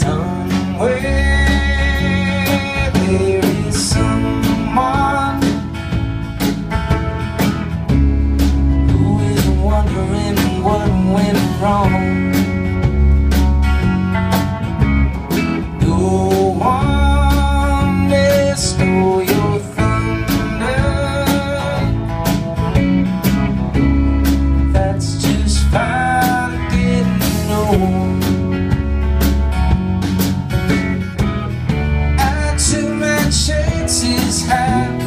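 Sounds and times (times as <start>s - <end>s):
man singing: 0.0s - 5.9s, 8.8s - 12.7s, 15.6s - 22.4s, 24.6s - 28.5s, 32.1s - 35.0s
drum kit beat: 0.0s - 35.0s
electric and acoustic guitars: 0.0s - 35.0s
electric bass: 0.0s - 35.0s.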